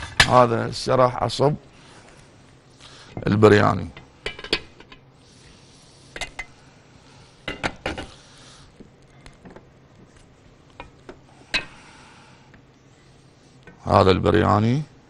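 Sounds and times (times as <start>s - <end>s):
soft hiss: 0.0s - 15.0s.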